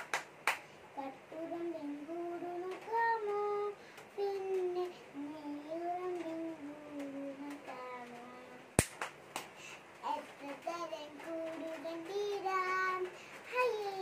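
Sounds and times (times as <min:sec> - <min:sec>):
girl singing: 0:00.9 - 0:08.8, 0:10.0 - 0:14.0
sharp click: 0:08.8 - 0:09.5.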